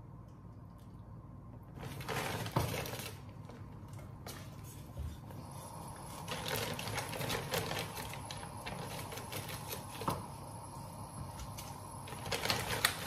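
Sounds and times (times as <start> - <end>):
plastic bag crinkling: 1.7 - 3.7, 6.2 - 10.2, 11.5 - 13.0.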